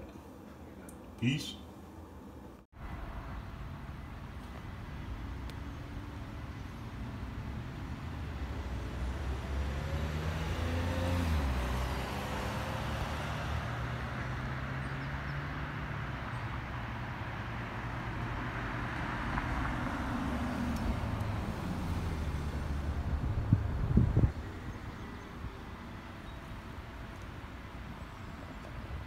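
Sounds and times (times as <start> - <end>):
steady traffic noise: 0.0 - 29.0
car passing by: 7.1 - 27.1.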